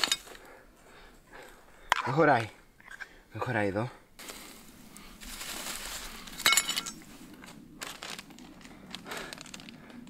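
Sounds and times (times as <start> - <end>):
plant rustling and crinkling: 4.2 - 10.0
sharp crackles: 4.2 - 10.0.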